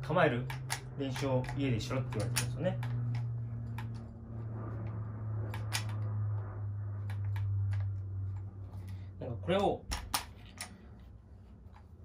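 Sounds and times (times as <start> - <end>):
low hum: 0.0 - 12.0
shotgun handling clicks: 9.9 - 10.8.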